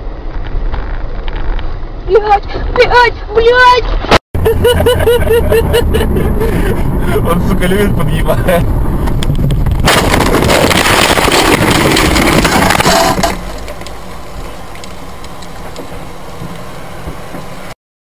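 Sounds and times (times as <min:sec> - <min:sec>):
car crash: 0:09.0 - 0:15.0
loud crunching: 0:09.0 - 0:17.5.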